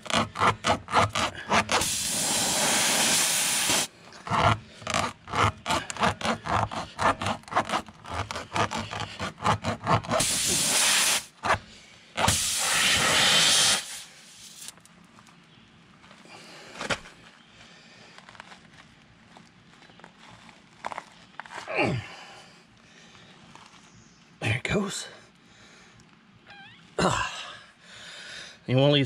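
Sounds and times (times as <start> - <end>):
tire reamer rasping: 0.0 - 11.6, 12.2 - 14.7
air hissing from tire: 1.7 - 3.9, 10.2 - 11.3, 12.2 - 14.7.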